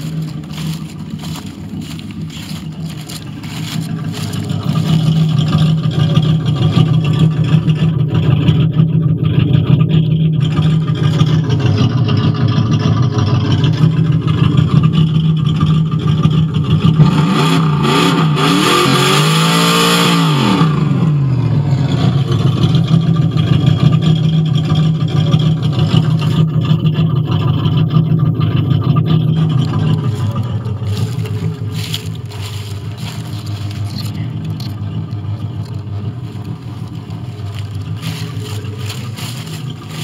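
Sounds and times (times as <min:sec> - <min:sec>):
car engine idling and revving: 0:00.0 - 0:40.0.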